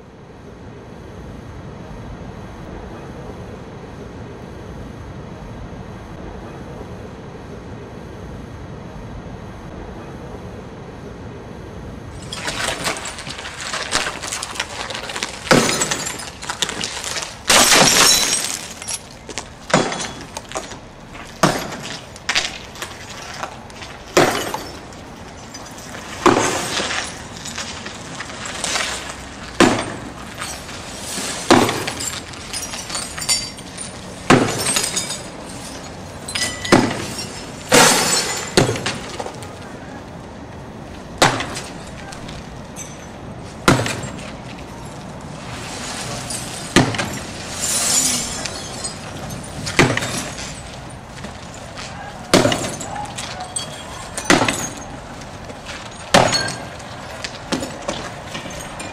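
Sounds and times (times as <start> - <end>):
windshield glass smashing: 12.2 - 23.3, 24.1 - 39.4, 45.8 - 51.7, 52.3 - 55.0, 55.7 - 58.9
glass clinking: 31.9 - 38.6, 52.5 - 54.9.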